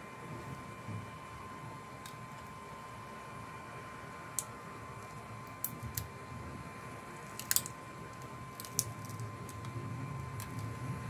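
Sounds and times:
faint steady whine: 0.0 - 11.0
phone parts clicking and tapping: 7.2 - 9.7.

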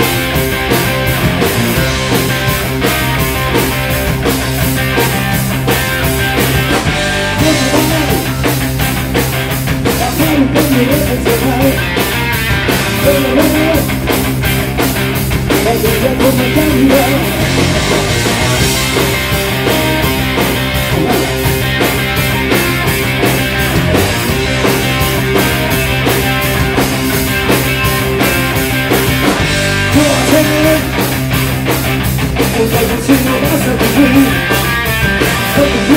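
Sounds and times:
bass guitar: 0.0 - 35.9
drum kit: 0.0 - 35.9
electric guitar: 0.0 - 35.9
man singing: 7.3 - 8.5, 9.9 - 12.0, 12.8 - 14.0, 15.5 - 17.4, 20.9 - 21.4, 29.9 - 31.0, 32.4 - 34.7, 35.4 - 35.9.

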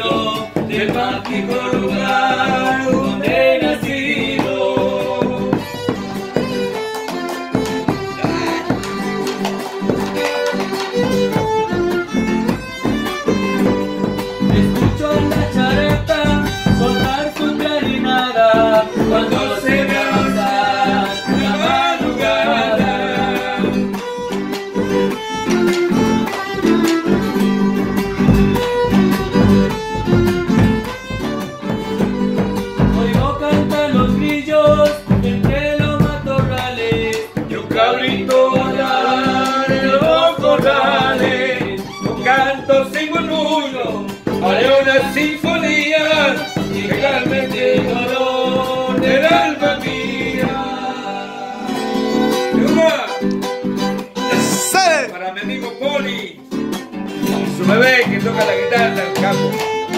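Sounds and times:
strummed acoustic guitar: 0.0 - 59.9
violin melody: 5.5 - 15.2, 18.7 - 22.4, 23.6 - 33.1, 41.8 - 42.8, 59.0 - 59.9.

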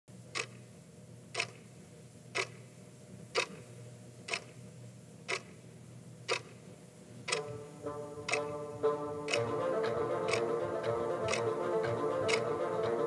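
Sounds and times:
faint low hum: 0.1 - 13.0
clock ticking: 0.3 - 0.6, 1.3 - 1.7, 2.3 - 2.7, 3.3 - 3.7, 4.3 - 4.6, 5.3 - 5.6, 6.3 - 6.6, 7.3 - 13.0.

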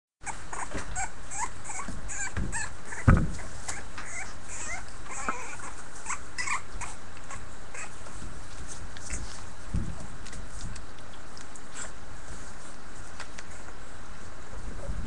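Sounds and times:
puppies squeaking and yipping: 0.2 - 8.2.

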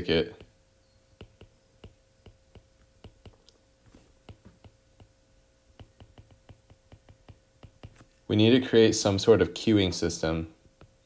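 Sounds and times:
stylus tapping on glass screen: 0.3 - 8.2.

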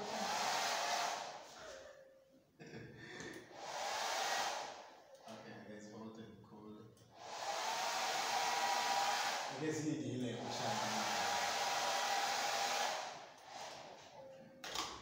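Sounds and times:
hair dryer blowing: 0.0 - 1.8, 3.5 - 5.0, 7.1 - 14.0.

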